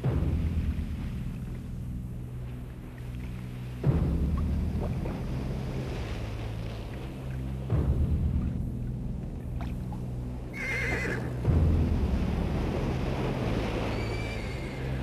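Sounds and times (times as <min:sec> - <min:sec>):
horse whinnying: 0:10.5 - 0:11.3.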